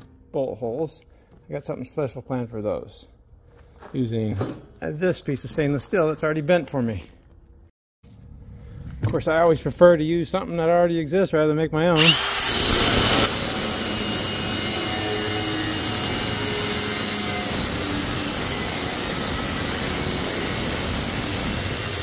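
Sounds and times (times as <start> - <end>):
angle grinder cutting steel: 12.0 - 22.0.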